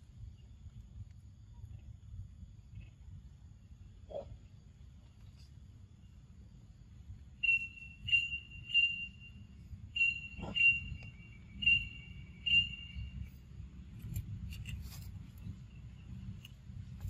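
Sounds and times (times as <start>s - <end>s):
high whistle-like calls: 7.4s - 13.2s.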